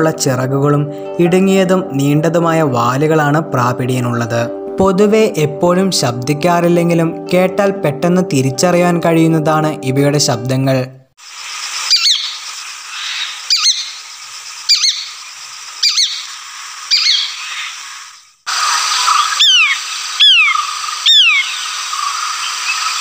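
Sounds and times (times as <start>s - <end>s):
background hiss: 11.2s - 23.0s
high whistled descending bird call: 11.8s - 15.2s, 15.8s - 23.0s.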